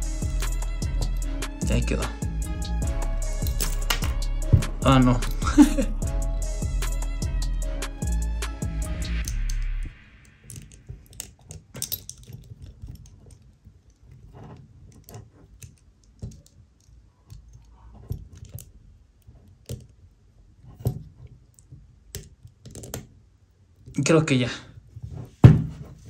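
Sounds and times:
music track: 0:00.0 - 0:10.3
plastic figure parts clicking: 0:10.2 - 0:20.0, 0:20.8 - 0:23.2.

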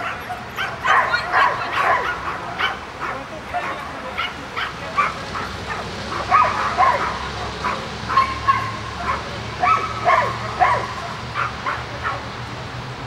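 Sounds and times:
dog barking and yipping: 0:00.0 - 0:12.3.

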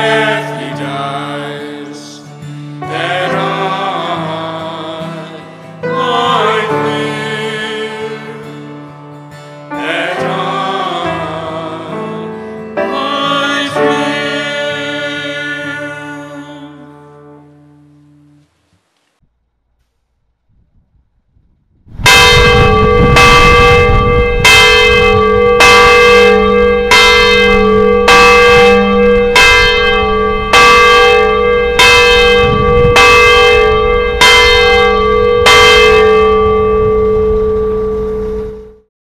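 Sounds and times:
church bell tolling: 0:22.0 - 0:38.8.

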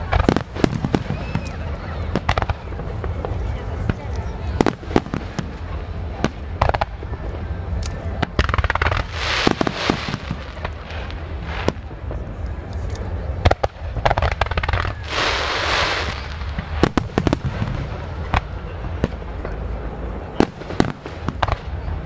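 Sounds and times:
fireworks booming: 0:00.0 - 0:22.0
steady low rumble: 0:00.0 - 0:22.0
dense hiss: 0:08.5 - 0:13.2, 0:14.4 - 0:18.3.

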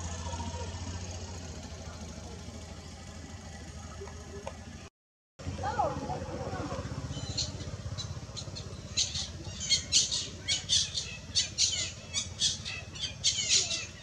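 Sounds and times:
baby monkey shrill squeaking cries: 0:08.8 - 0:14.0.

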